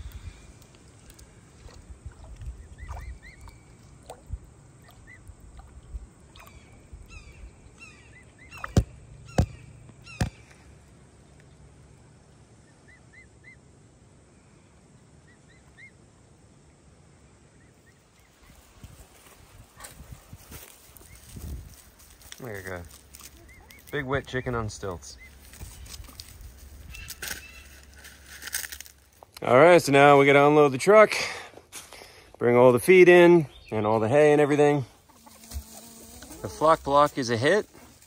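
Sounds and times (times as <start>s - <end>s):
splashing in shallow water: 0.0s - 7.0s, 8.4s - 9.6s.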